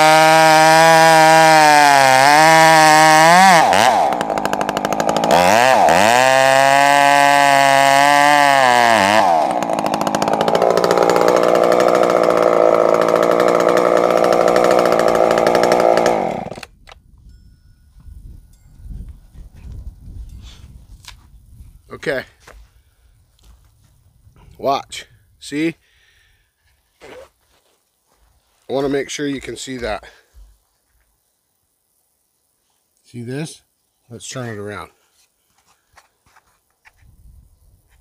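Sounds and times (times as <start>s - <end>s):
chainsaw cutting wood: 0.0s - 16.9s.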